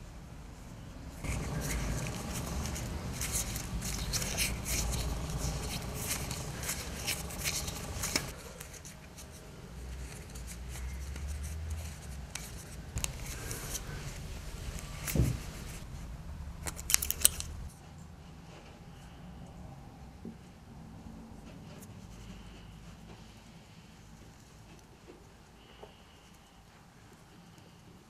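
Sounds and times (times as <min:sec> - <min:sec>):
hands rubbing fishing line: 0:01.2 - 0:15.8
thump: 0:15.2 - 0:15.4.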